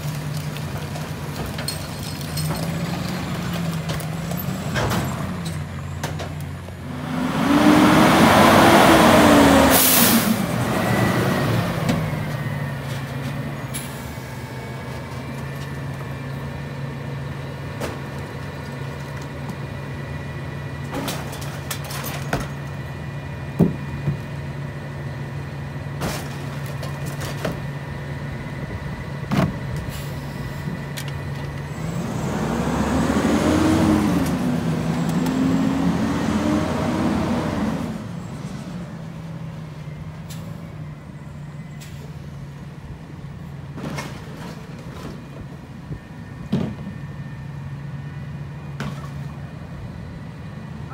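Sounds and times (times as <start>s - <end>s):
hydraulics whining: 0.1s - 50.9s
engine revving: 6.9s - 12.2s, 31.7s - 38.2s
garbage truck idling: 11.2s - 31.8s.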